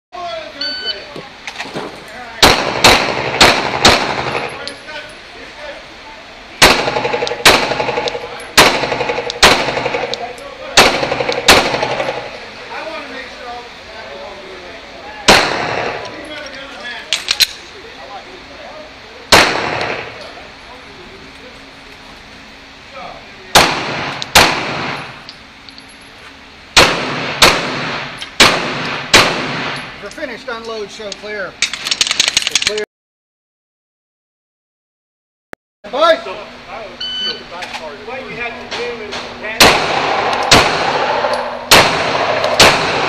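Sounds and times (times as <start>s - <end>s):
pistol shots with ringing echo: 2.4s - 4.7s, 6.6s - 12.4s, 15.3s - 16.2s, 19.3s - 20.2s, 23.5s - 25.2s, 26.8s - 29.9s, 39.6s - 43.0s.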